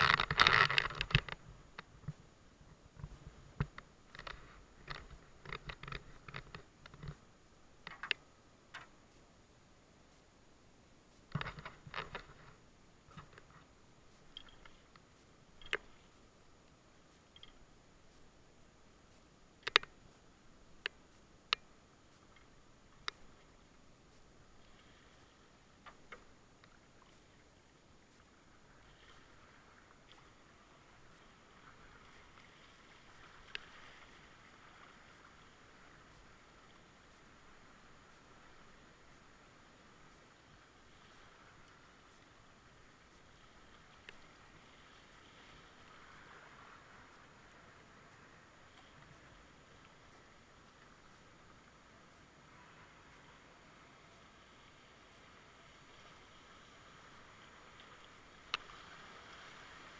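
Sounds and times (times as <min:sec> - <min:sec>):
faint knocks and taps from kayak: 0:00.0 - 0:09.3, 0:11.2 - 0:18.3, 0:20.8 - 0:27.4
light clicks: 0:07.8 - 0:09.0, 0:11.2 - 0:18.3, 0:19.1 - 0:20.2, 0:20.8 - 0:23.5.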